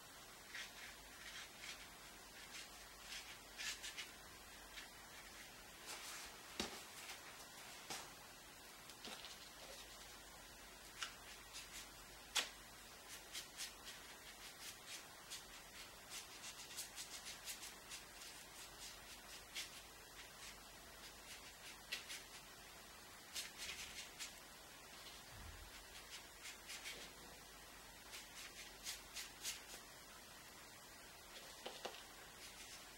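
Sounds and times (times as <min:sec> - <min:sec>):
paintbrush scratching on paper: 0:00.4 - 0:07.2, 0:13.0 - 0:22.5, 0:23.2 - 0:27.3, 0:28.0 - 0:29.9, 0:31.4 - 0:32.9.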